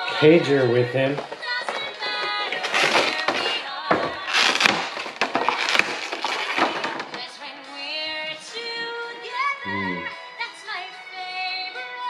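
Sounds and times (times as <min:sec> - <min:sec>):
packaging crinkling and rustling: 0:01.0 - 0:07.3.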